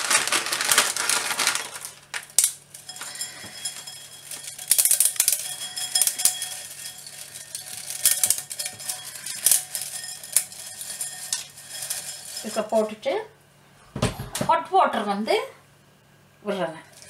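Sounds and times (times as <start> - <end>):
plastic packet crinkling: 0.0 - 12.9.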